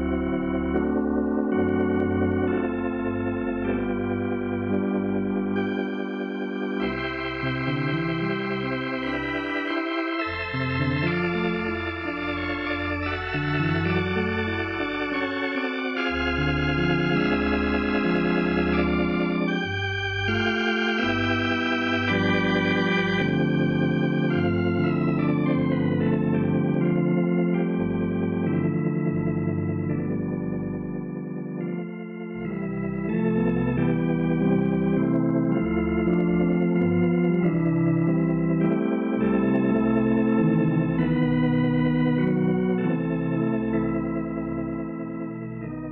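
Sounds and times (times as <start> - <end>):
organ chords over bass line: 0.0 - 45.9.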